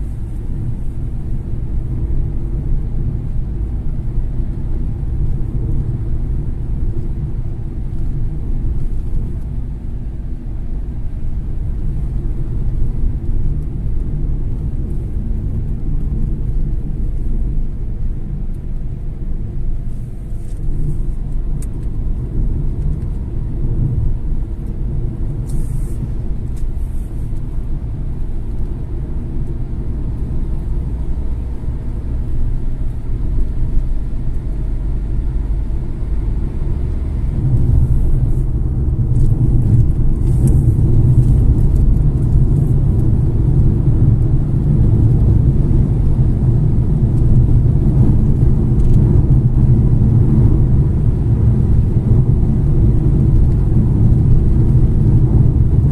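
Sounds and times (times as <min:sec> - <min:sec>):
car driving at highway speed: 0:00.0 - 0:55.9
road and engine noise in cabin: 0:00.0 - 0:55.9.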